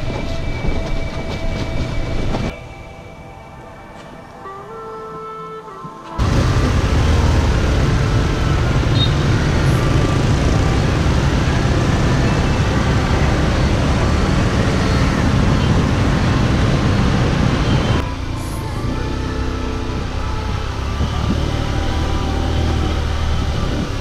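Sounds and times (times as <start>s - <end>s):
road noise: 0.0s - 24.0s
car and truck engines: 6.2s - 24.0s
motorbike engine: 6.2s - 24.0s.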